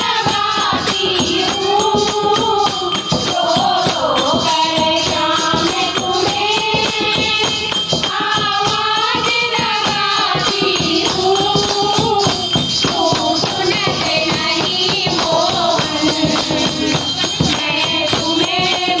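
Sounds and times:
dholak drum: 0:00.0 - 0:19.0
women singing devotional song: 0:00.0 - 0:19.0.

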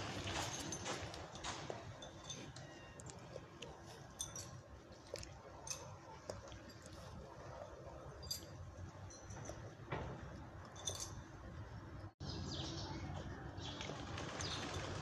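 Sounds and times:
dry leaves crackling and rustling: 0:00.0 - 0:01.0, 0:13.6 - 0:15.0.

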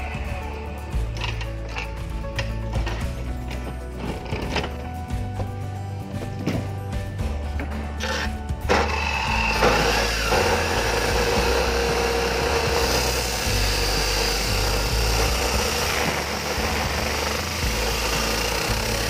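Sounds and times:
chop saw grinding metal: 0:08.0 - 0:19.0.

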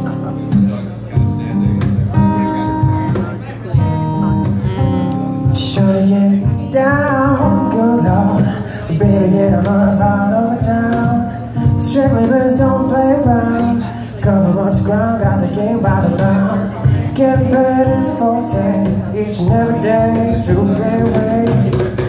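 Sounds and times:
cajon hand drumming: 0:00.0 - 0:22.0
strummed acoustic guitar: 0:00.0 - 0:22.0
person singing wordlessly: 0:04.6 - 0:22.0.

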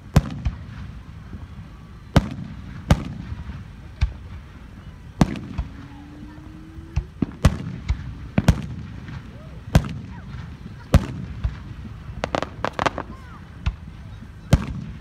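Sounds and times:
firework shells bursting: 0:06.9 - 0:13.8.

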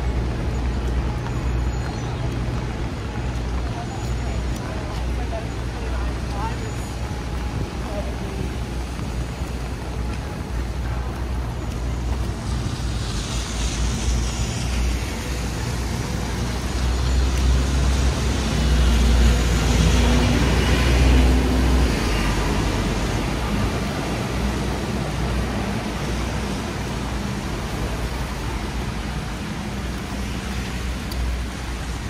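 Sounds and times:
tyres hissing on wet road: 0:00.0 - 0:32.0
vehicle engines rumbling: 0:00.0 - 0:32.0.

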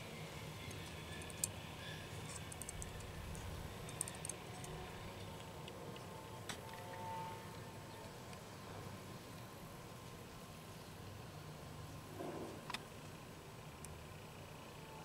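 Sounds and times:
light clicks of metal model: 0:02.2 - 0:04.8.

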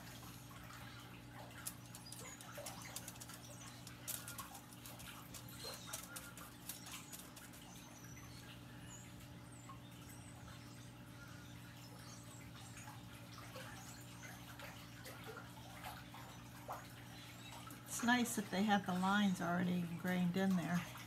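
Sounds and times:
steady low hum: 0:00.0 - 0:21.0
faint bird chirps: 0:00.2 - 0:14.8.

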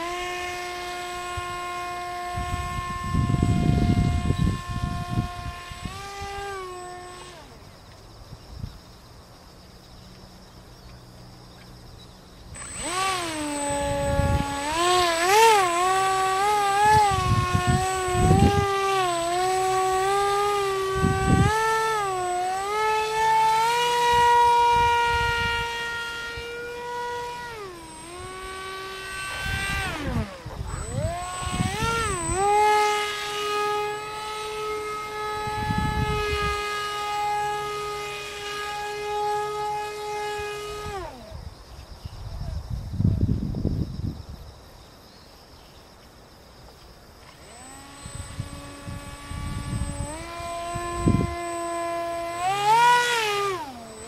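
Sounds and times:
model plane motor whining: 0:00.0 - 0:08.2, 0:11.6 - 0:41.5, 0:47.2 - 0:54.0
wind rumble on microphone: 0:01.2 - 0:06.8, 0:12.8 - 0:22.2, 0:23.6 - 0:26.7, 0:28.2 - 0:33.8, 0:34.8 - 0:36.9, 0:40.5 - 0:44.6, 0:47.4 - 0:52.2.

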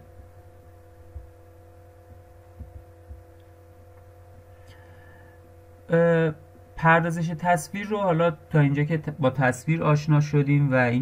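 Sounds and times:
faint electrical hum: 0:00.0 - 0:11.0
soft low thumps: 0:01.1 - 0:01.5, 0:02.3 - 0:03.4.

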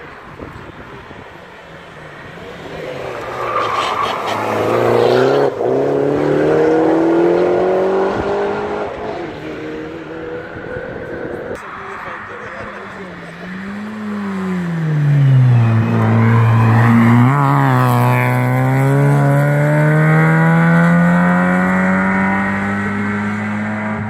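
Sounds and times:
race car engine accelerating: 0:02.6 - 0:24.0.

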